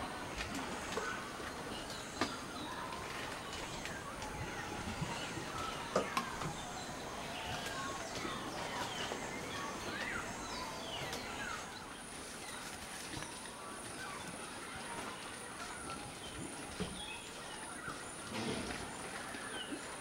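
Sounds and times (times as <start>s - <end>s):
steady background noise: 0.0s - 20.0s
birds chirping and whistling: 1.0s - 12.6s.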